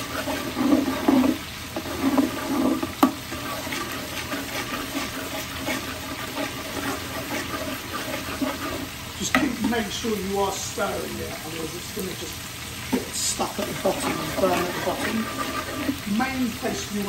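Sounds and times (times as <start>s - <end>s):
metal spoon scraping a pot: 0.0s - 9.7s, 12.9s - 16.6s
paste sizzling in hot oil: 0.0s - 17.0s.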